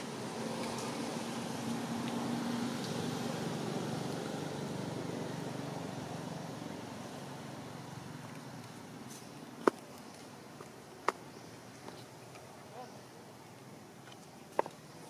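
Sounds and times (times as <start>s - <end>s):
passing vehicle engine hum: 0.0s - 9.6s.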